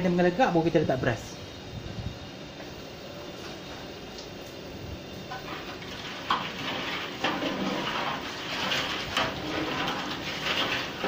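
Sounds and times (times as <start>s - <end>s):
metal ladle scraping a metal pot: 5.3s - 11.0s.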